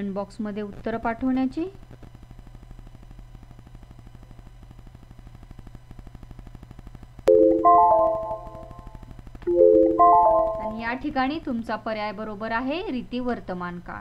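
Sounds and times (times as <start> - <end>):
short rising chime: 7.3 - 8.9, 9.5 - 10.9.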